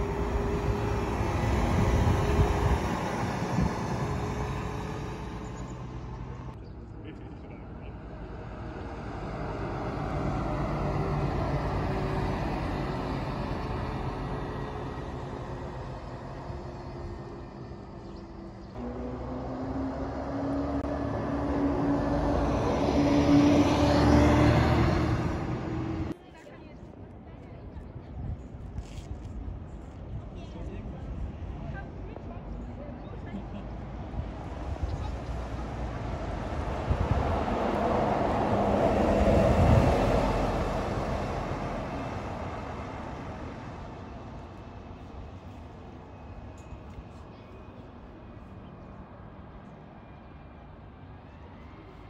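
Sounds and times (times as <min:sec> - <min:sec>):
bus driving past: 0:00.0 - 0:26.2, 0:29.7 - 0:52.0.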